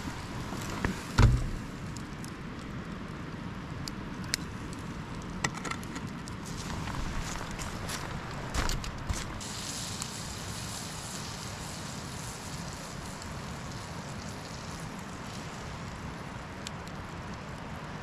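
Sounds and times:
sharp knocks and crackles: 0.4s - 1.8s, 5.4s - 9.4s
butter sizzling in frying pan: 9.4s - 15.8s.

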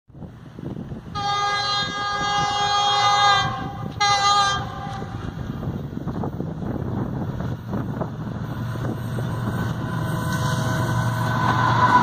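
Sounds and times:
locomotive air horn blasts: 1.1s - 5.3s.

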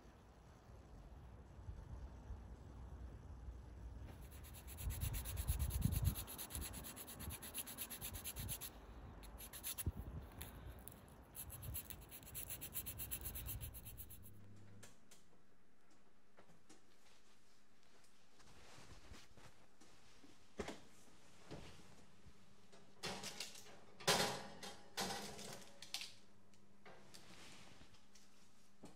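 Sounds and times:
rhythmic rubbing and scraping: 4.2s - 14.4s.

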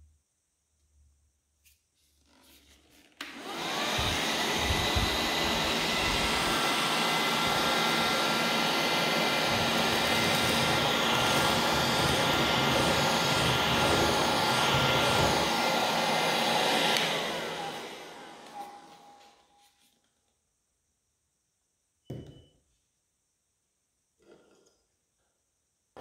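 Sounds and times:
handheld vacuum whining: 3.2s - 19.6s.

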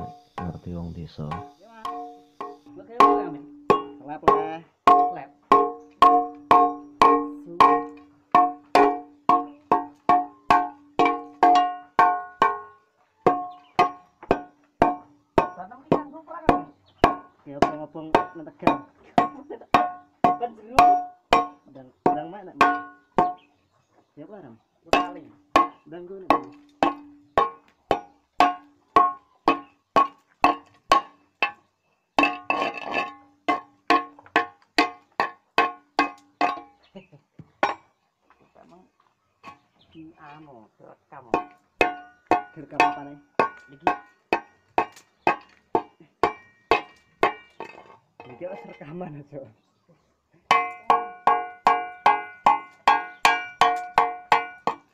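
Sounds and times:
metal tool striking steel pipe: 0.0s - 0.6s, 1.3s - 15.6s, 16.5s - 23.4s, 25.0s - 31.6s, 41.4s - 47.8s, 50.5s - 54.9s
metal pipe struck ringing: 1.3s - 12.7s
rattling and scraping: 26.3s - 36.9s.

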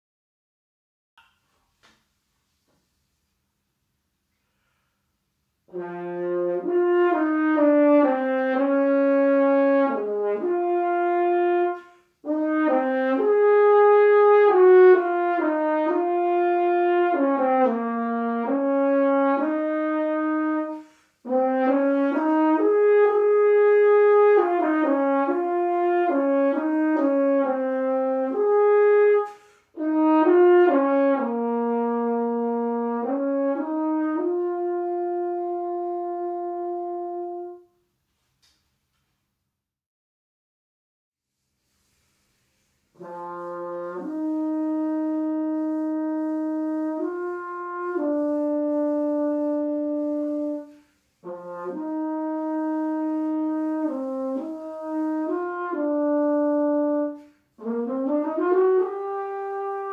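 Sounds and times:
french horn slow melody: 5.5s - 38.2s, 41.6s - 59.9s.

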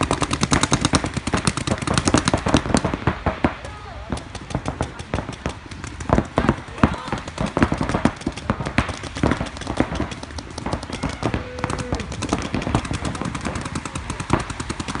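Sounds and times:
paintball markers popping: 4.1s - 15.0s.

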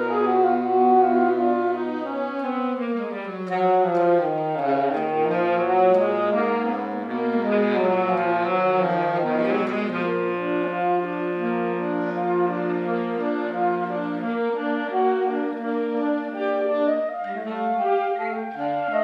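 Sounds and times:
saxophone ensemble playing chords: 0.0s - 19.0s.

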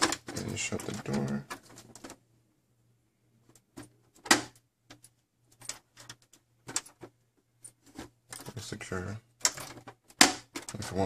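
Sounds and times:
plastic door clicks and knocks: 3.8s - 5.0s.

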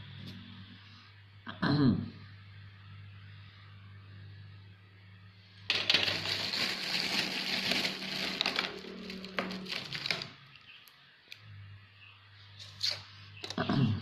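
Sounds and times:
faint electrical hum: 0.0s - 14.0s
paper rustling and scraping: 5.7s - 10.4s.

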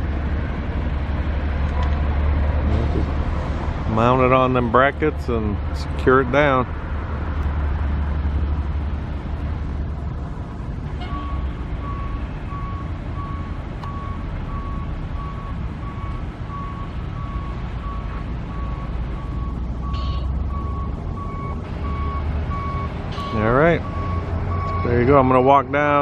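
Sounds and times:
low steady rumble: 0.0s - 26.0s
reversing alarm beeping: 11.0s - 25.4s.

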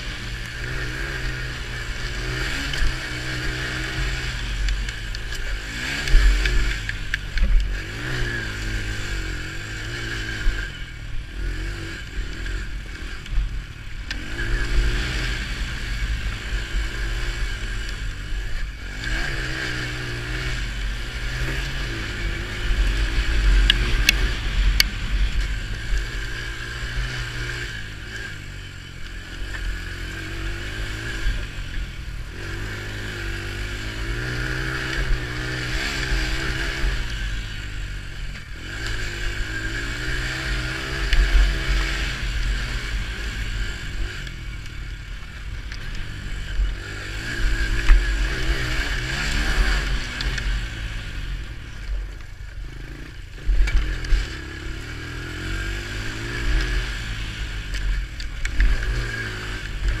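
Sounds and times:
quad bike engine revving: 0.0s - 60.0s.

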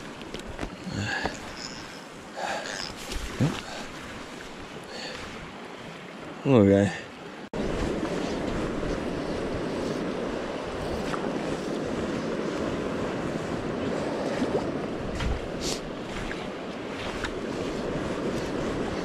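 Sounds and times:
wind on microphone: 7.6s - 19.0s.

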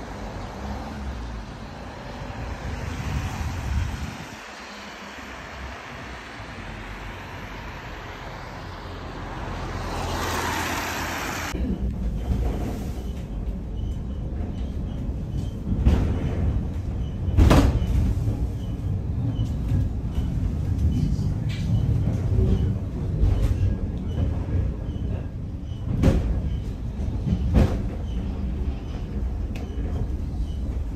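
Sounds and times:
funicular car rumbling: 0.0s - 30.9s
tyres hissing on wet street: 2.0s - 11.6s.

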